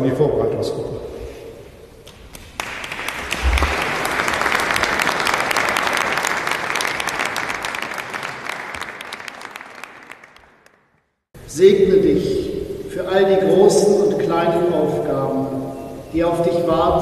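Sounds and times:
crowd applauding: 2.0s - 11.1s.

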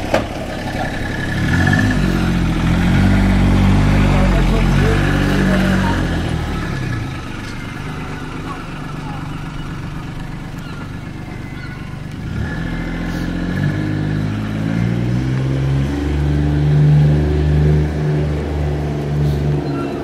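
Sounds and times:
vehicle engine accelerating: 0.0s - 20.0s.

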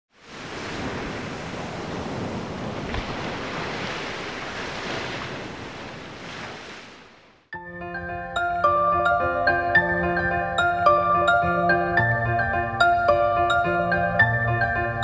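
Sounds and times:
surf waves washing onto beach: 0.1s - 7.4s.

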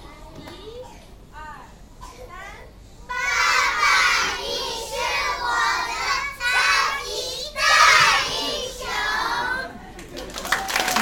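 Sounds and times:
children singing together: 3.1s - 9.7s.

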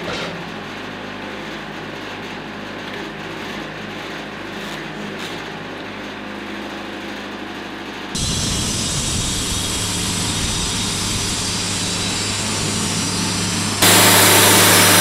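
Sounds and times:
band sawmill running: 8.2s - 15.0s
diesel engine humming: 8.2s - 15.0s.

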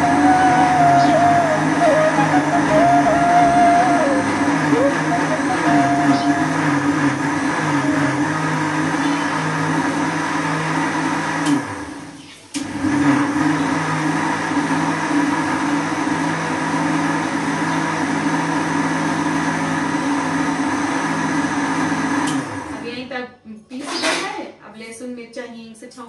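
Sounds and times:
electric mixer grinder motor: 0.0s - 22.8s.

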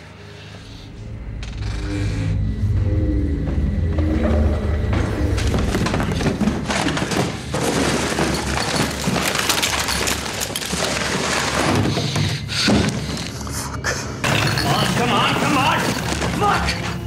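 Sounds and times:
items knocking and clattering: 4.9s - 13.4s, 14.2s - 17.0s.

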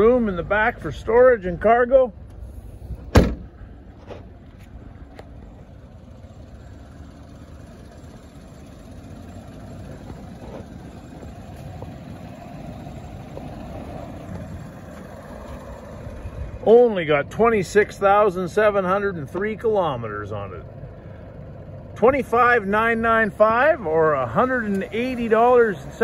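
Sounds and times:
low vehicle rumble: 0.0s - 26.0s
car liftgate thud: 3.0s - 4.2s.

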